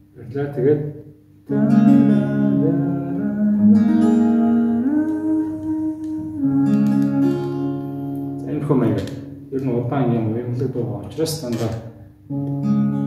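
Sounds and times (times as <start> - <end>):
acoustic guitar chords: 1.4 - 10.0, 12.2 - 13.0.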